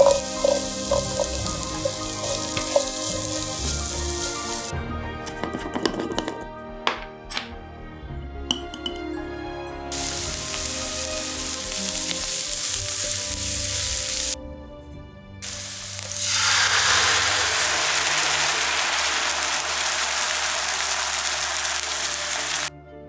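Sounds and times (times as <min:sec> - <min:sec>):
food sizzling in a frying pan: 0:00.0 - 0:04.7, 0:09.9 - 0:14.4, 0:15.4 - 0:22.7
soft background music: 0:00.0 - 0:17.7, 0:21.9 - 0:23.0.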